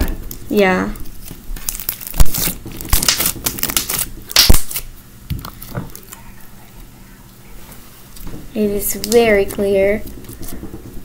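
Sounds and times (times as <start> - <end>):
slime crackling and popping: 0.0 - 6.2, 8.9 - 9.4.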